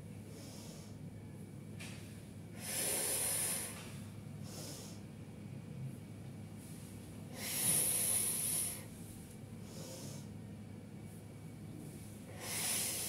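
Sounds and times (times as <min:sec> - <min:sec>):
woman breathing hard: 0:02.5 - 0:05.1, 0:07.3 - 0:09.0, 0:09.6 - 0:10.4, 0:12.2 - 0:13.0.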